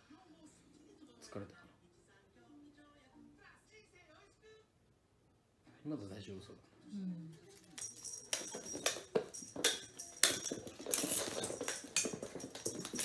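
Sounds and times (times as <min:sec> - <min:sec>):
cat paws tapping on wooden floor: 0:07.6 - 0:13.0.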